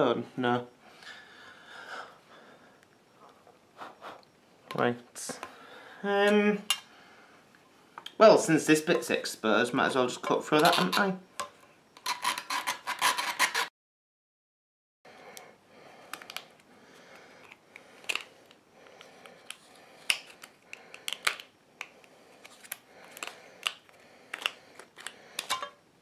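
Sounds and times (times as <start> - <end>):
clicks and scrapes of plastic and metal: 10.6 - 13.7, 19.2 - 25.8
hacksaw cutting thin metal: 12.0 - 13.7.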